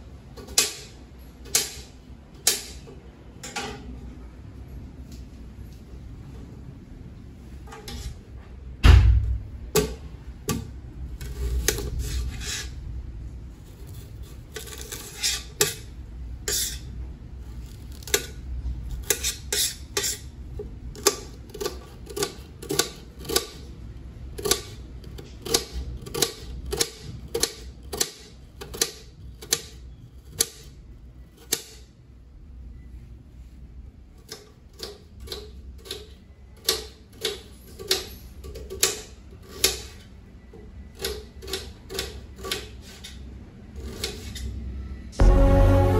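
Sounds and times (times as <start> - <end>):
heavy thump: 8.8 - 9.6.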